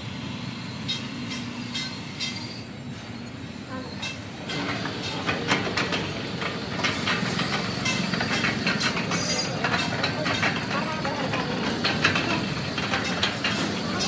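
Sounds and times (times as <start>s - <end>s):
machine rumble: 4.4s - 14.0s.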